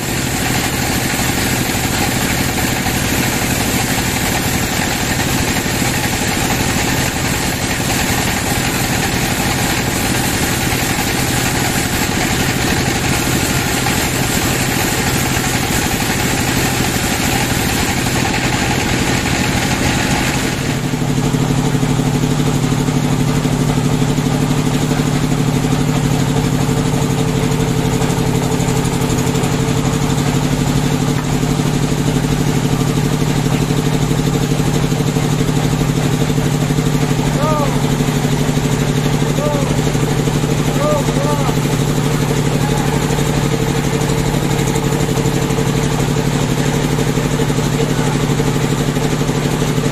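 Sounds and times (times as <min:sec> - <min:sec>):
band saw cutting wood: 0:00.0 - 0:21.3.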